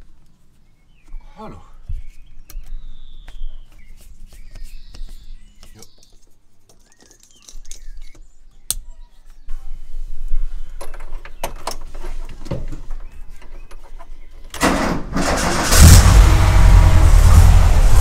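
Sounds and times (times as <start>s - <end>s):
van engine starting and running: 14.6s - 18.0s.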